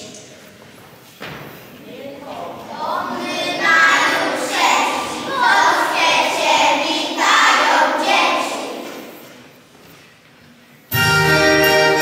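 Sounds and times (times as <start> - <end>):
children singing in unison: 2.7 - 9.2.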